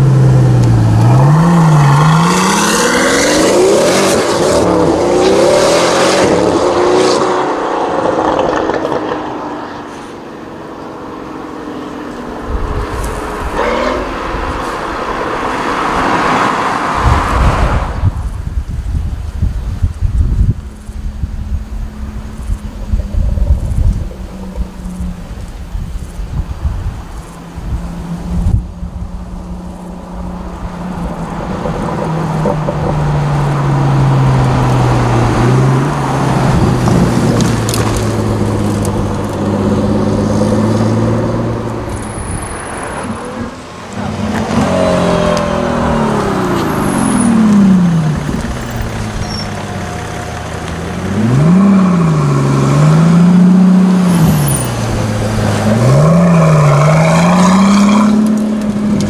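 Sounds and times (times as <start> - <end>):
car engine revving: 0.0 - 10.2, 27.6 - 59.0.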